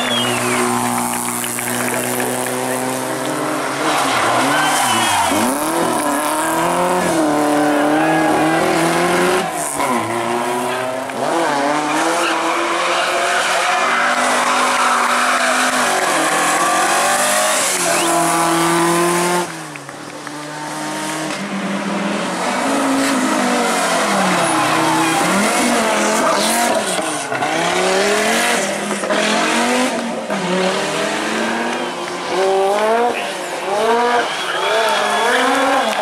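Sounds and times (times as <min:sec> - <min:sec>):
rally car engines revving: 0:00.0 - 0:36.0
tyre squeal: 0:03.9 - 0:07.2.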